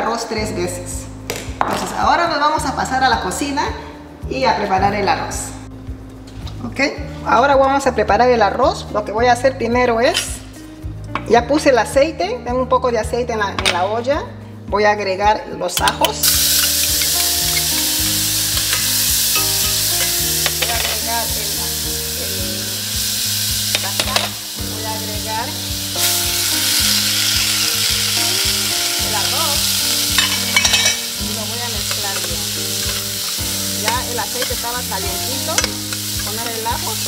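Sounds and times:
garlic sizzling in hot oil: 16.0 - 37.0
metal spoon clinking against pan: 30.1 - 31.1, 35.5 - 36.6.

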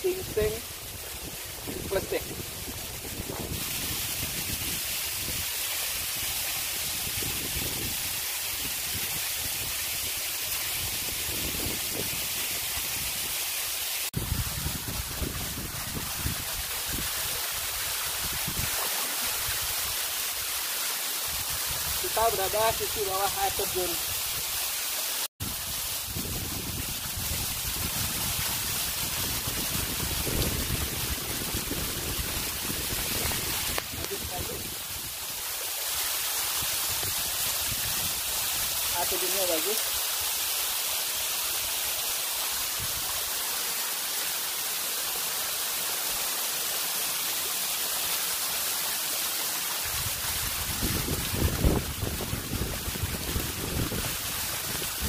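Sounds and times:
waterfall rushing: 0.0 - 25.3, 26.9 - 55.0
wind buffeting microphone: 1.2 - 5.4, 26.0 - 35.1, 49.9 - 55.0.

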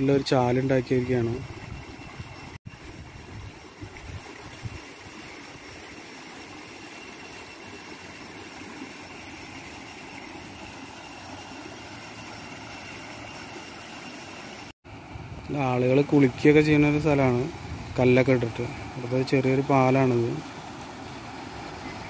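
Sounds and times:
high-pitched whine: 0.0 - 14.8.

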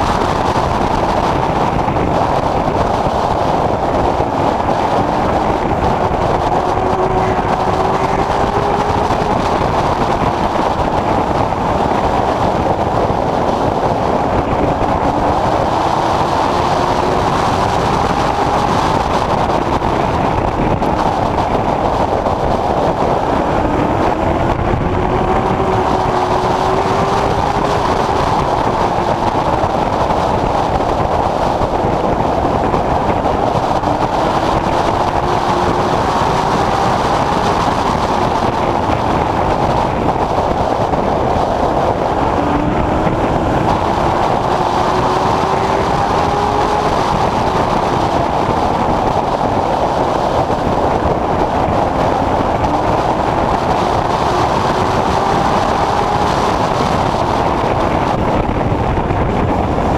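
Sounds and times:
race car engine running hard: 0.0 - 59.9.

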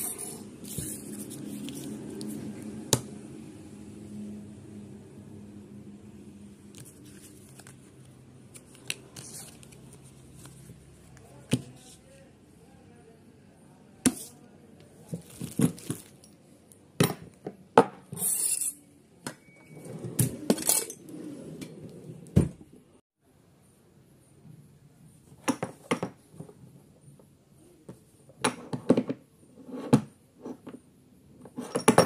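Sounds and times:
plastic bag and paper rustling: 15.0 - 16.2.

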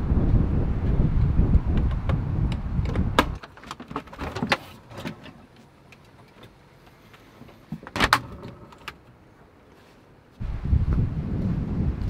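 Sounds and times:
wind noise on microphone: 0.0 - 3.4, 10.4 - 12.0.

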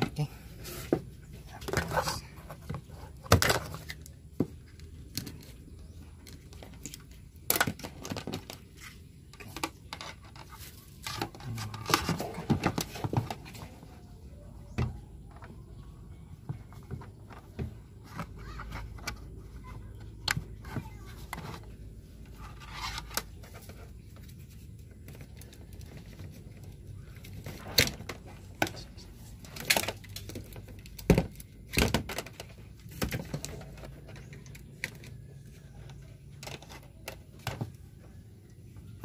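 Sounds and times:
cable handling rustles: 0.0 - 14.4.

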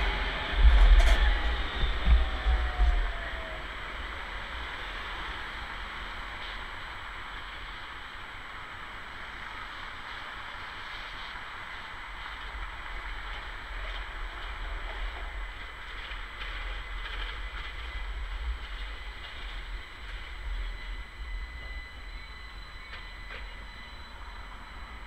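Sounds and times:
low rumble: 0.0 - 3.9
tram approaching: 0.0 - 25.0.

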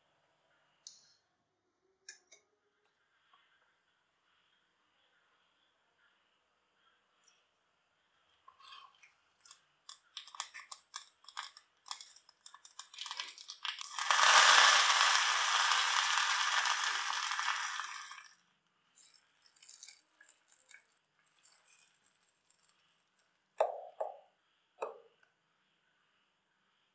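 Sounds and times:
seeds popping in hot oil: 9.4 - 18.4, 19.0 - 24.2
leaves sizzling in hot oil: 12.7 - 18.3.

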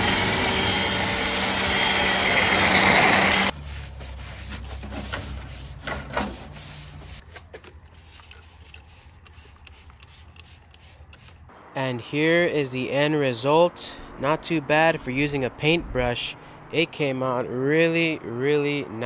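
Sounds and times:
pressure washer spraying: 0.0 - 7.2, 8.0 - 11.4
brush scrubbing wet metal: 2.5 - 7.2, 7.8 - 11.5.

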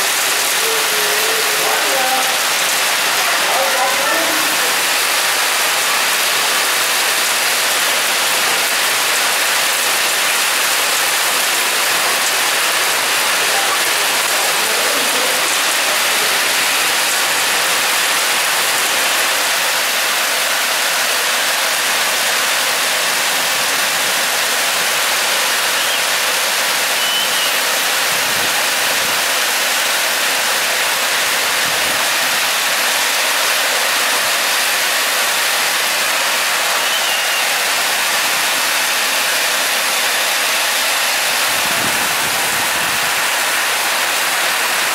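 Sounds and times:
hail and rain pelting the ground: 0.0 - 44.9.

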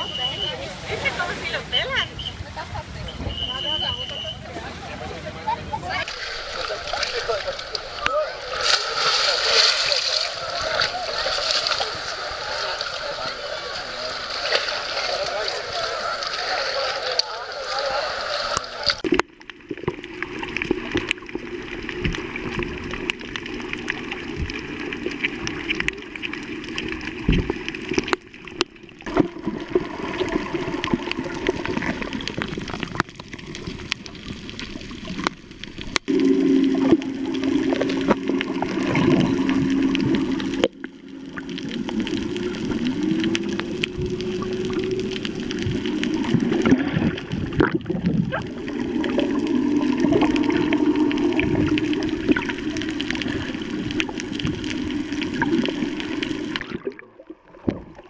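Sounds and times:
underwater water noise: 0.0 - 58.0
steady low hum: 36.0 - 56.7.

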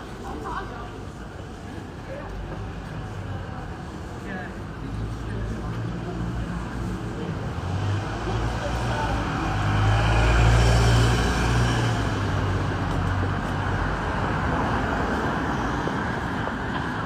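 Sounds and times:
city traffic noise: 0.0 - 17.0
car driving past: 7.7 - 12.4.

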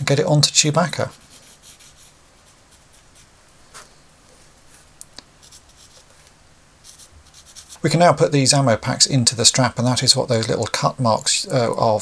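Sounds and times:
marker scratching on strap edge: 1.0 - 3.3, 4.8 - 7.8.

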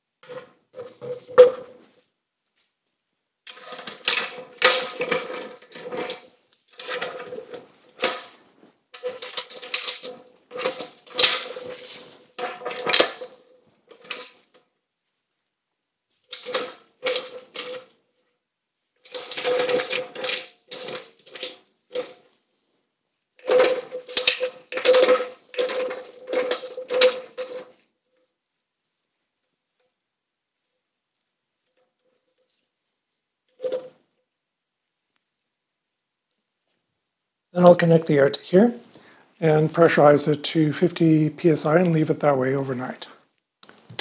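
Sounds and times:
metal lid clanking and scraping: 3.5 - 8.4, 9.0 - 14.3, 19.1 - 22.2, 23.4 - 27.7.

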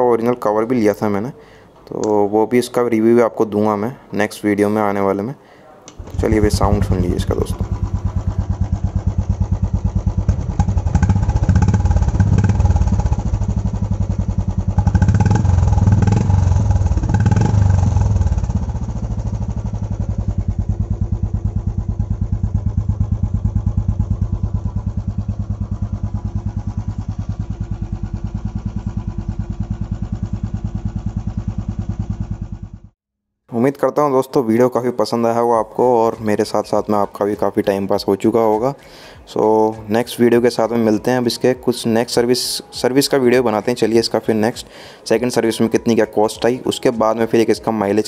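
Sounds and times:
motorcycle engine revving and idling: 6.0 - 33.0.

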